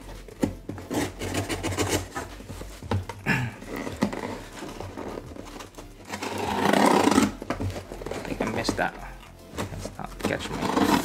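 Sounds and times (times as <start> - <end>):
packing tape ripping off box: 3.6 - 8.5, 10.2 - 11.0.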